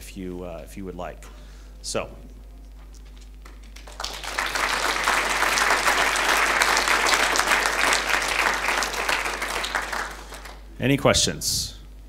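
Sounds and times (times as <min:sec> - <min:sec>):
audience applauding: 0:03.4 - 0:10.7.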